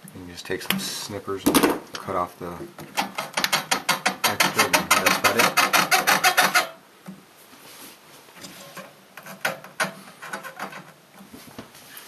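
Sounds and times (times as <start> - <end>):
faint handling and rubbing: 7.3 - 12.0.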